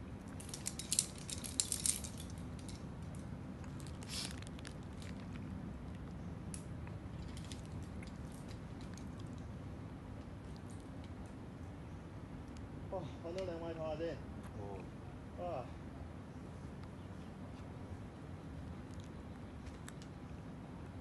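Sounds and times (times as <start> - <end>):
climbing hardware clinking: 0.4 - 2.8.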